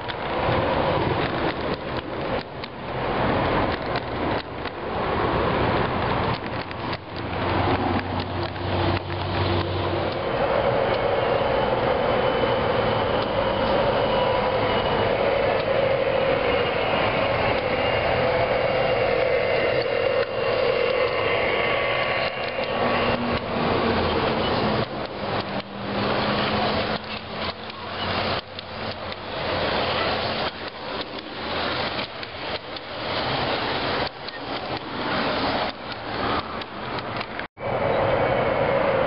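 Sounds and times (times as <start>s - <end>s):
model train rolling rumble: 0.0s - 39.0s
wheels clicking on track: 0.0s - 39.0s.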